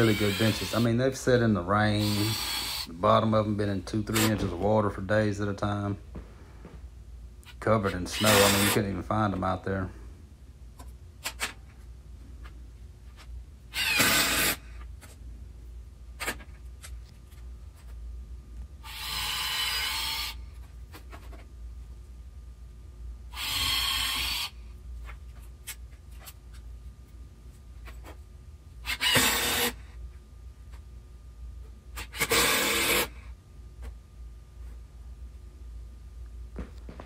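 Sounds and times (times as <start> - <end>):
cordless drill driving screws: 8.2 - 8.8, 13.7 - 14.6, 18.9 - 20.4, 23.4 - 24.5, 28.9 - 29.8, 32.0 - 33.1.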